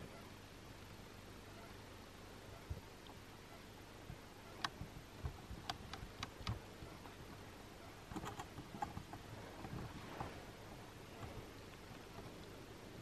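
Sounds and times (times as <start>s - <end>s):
faint hiss: 0.0s - 13.0s
small sharp clicks: 4.6s - 7.1s.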